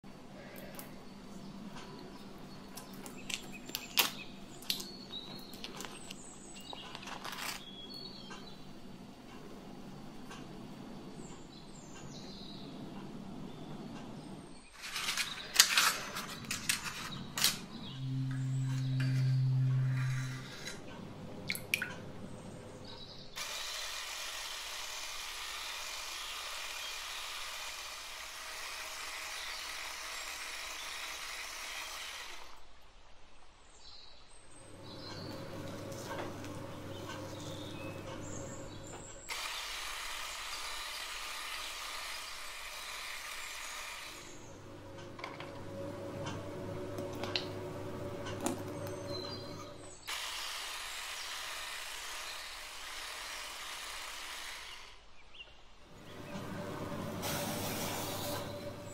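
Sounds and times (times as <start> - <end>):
steady low hum: 16.4 - 23.4, 44.3 - 50.1.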